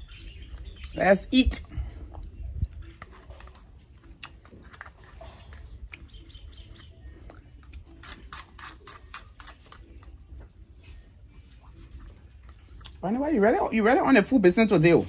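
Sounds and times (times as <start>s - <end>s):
spoon scraping plastic cup: 2.8s - 6.9s, 7.5s - 10.2s.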